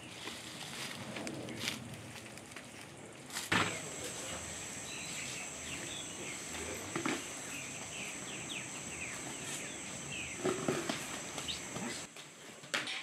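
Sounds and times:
insects buzzing: 1.5 - 12.1
birds chirping: 3.5 - 12.1.

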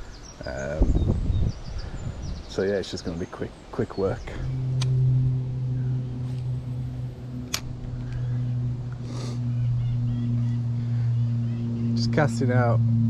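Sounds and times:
low engine drone: 1.5 - 13.0
sharp click: 4.8 - 5.0, 7.5 - 8.2.

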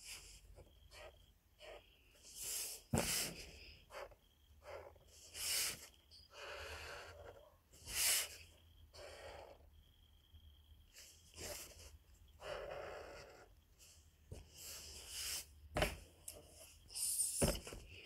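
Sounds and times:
marker scratching on paper: 11.0 - 13.5.

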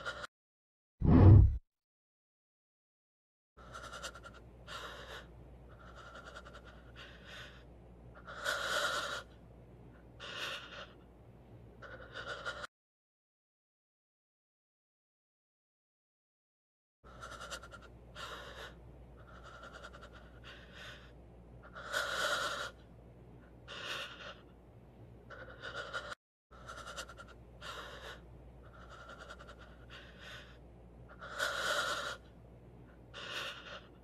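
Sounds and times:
person panting and gasping: 25.3 - 30.6, 33.2 - 34.0.

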